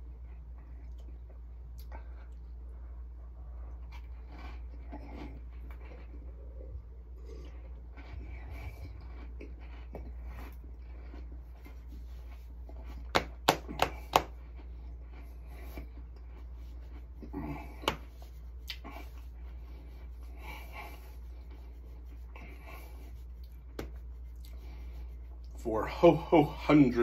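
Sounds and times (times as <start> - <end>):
hands rubbing fabric: 11.4 - 14.3, 17.8 - 25.6
hands patting belly: 12.8 - 14.4, 17.6 - 19.2, 21.4 - 25.5.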